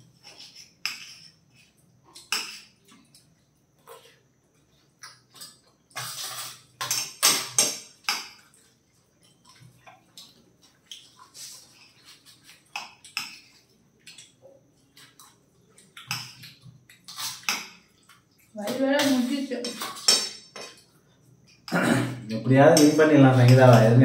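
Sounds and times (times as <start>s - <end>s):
spoons scraping and clinking plates: 0.1s - 2.8s, 5.3s - 8.5s, 18.7s - 20.9s, 22.4s - 24.0s.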